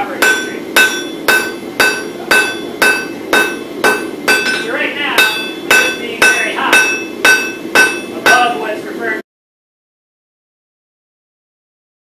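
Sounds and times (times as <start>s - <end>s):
hammer striking metal on anvil: 0.0s - 8.6s
low steady rush: 0.0s - 9.2s.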